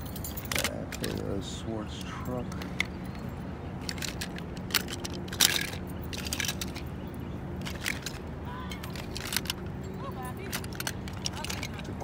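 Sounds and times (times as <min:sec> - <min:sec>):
toy cars clicking and clattering: 0:00.0 - 0:03.0, 0:03.8 - 0:07.0, 0:07.6 - 0:12.0.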